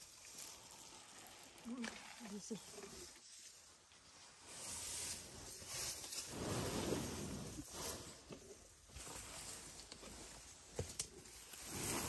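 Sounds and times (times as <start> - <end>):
dry grass rustling: 0.0 - 12.0
elephant trunk sniffing and blowing: 4.5 - 8.6.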